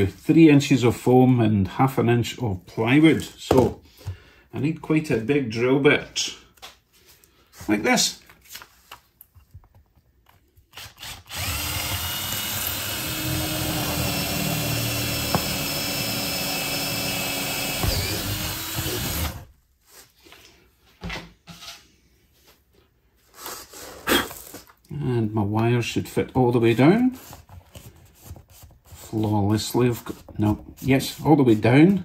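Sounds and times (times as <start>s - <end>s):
cordless drill boring through wood: 10.8s - 19.5s.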